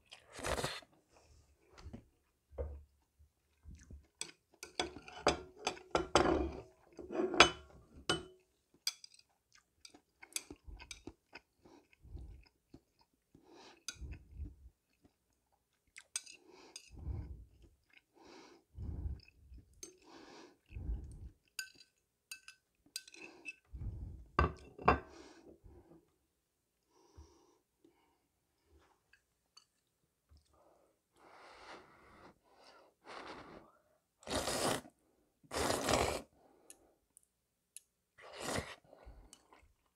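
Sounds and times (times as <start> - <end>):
close chewing of noodles: 9.1 - 21.6.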